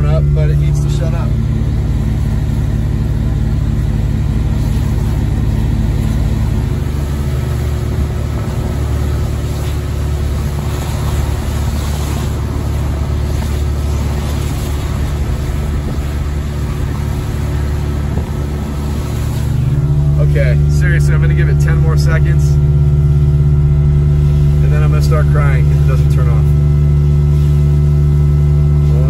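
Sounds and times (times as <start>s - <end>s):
vehicle engine and road noise: 0.0s - 29.0s.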